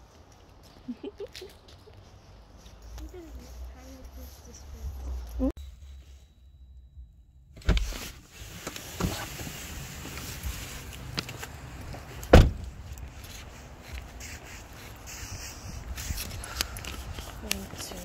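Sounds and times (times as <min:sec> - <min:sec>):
steady low rumble: 0:04.7 - 0:08.4.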